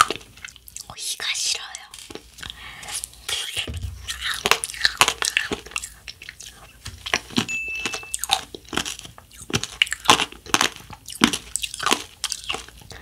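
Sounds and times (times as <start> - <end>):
chewing crunchy ice cream cone: 0.0 - 3.2, 4.2 - 13.0.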